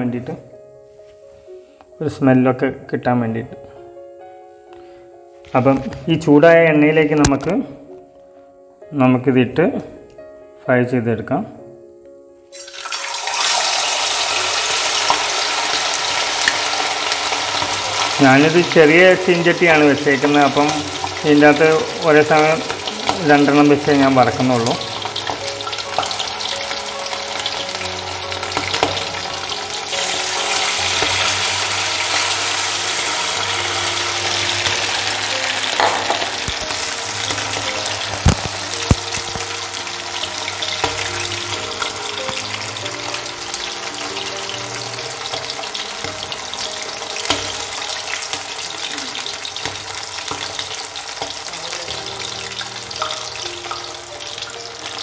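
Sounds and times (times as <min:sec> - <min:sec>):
deep-frying sizzle and bubbling: 0:12.5 - 0:55.0.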